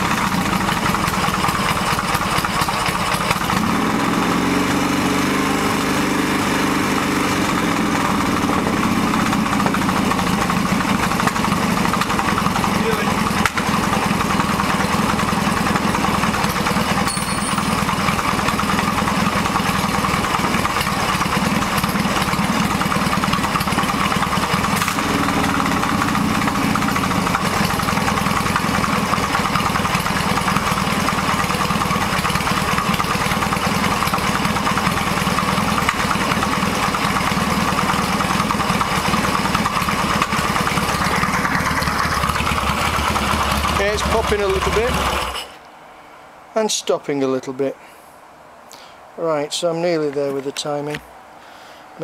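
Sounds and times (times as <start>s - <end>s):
motorcycle engine idling and popping: 0.0s - 45.7s.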